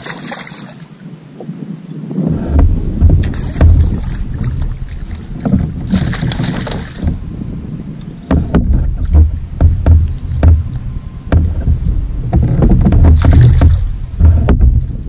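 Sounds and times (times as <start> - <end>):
water lapping at kayak: 0.0 - 15.0
wind rumbling on microphone: 0.0 - 15.0
clicks and knocks: 8.3 - 15.0.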